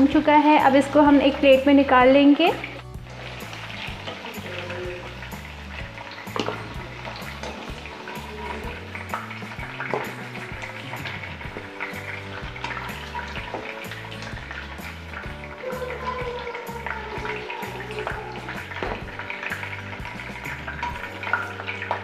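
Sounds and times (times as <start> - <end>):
chicken sizzling in hot oil: 0.0 - 22.0
skimmer clicking against pan: 5.1 - 15.3.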